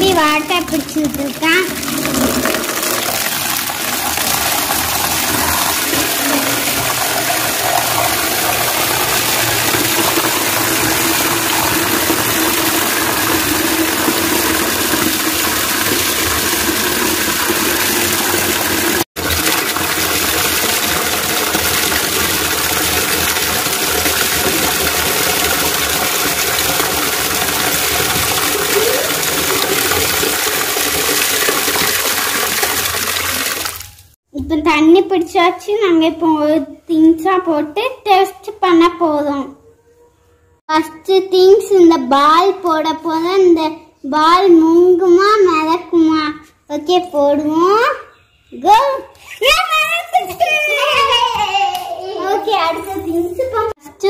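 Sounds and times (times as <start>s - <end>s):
water pouring into plastic tub: 0.0s - 34.2s.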